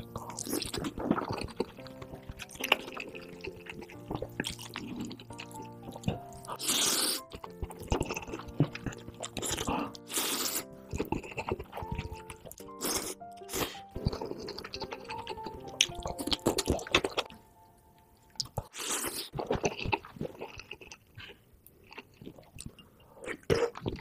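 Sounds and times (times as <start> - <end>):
chewing with wet clicks: 0.0 - 6.6, 7.2 - 10.2, 10.8 - 17.4, 18.2 - 24.0
noodle slurps: 0.0 - 17.2
background music: 0.0 - 18.8.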